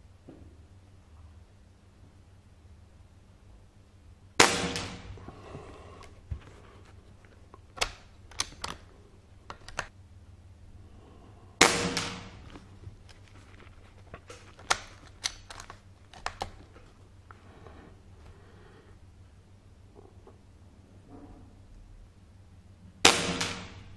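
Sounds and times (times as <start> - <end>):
air rifle shot: 4.4 - 5.2, 11.6 - 12.4, 23.0 - 23.9.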